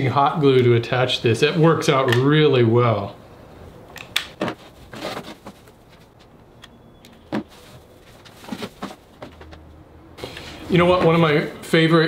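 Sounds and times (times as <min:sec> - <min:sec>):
rope rustling: 0:04.3 - 0:06.4, 0:07.2 - 0:11.6.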